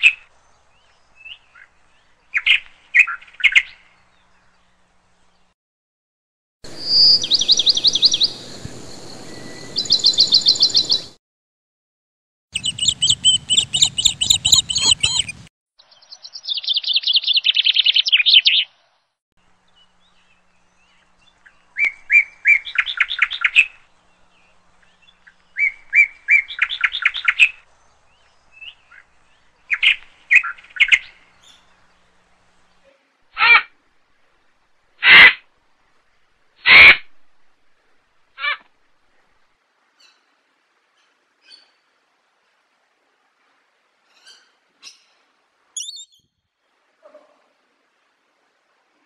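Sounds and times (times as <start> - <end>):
birds chirping trills: 6.7 - 11.2, 12.6 - 18.6, 45.8 - 46.3.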